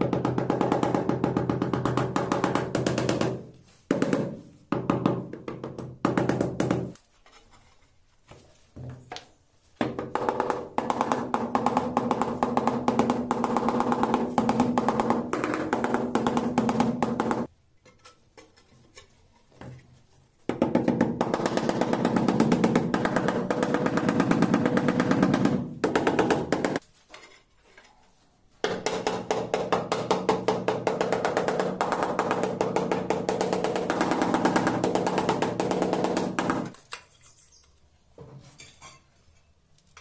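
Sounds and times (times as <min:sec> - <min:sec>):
rubber mallet tapping on tiles: 0:00.0 - 0:07.0, 0:09.8 - 0:17.5, 0:28.6 - 0:36.8.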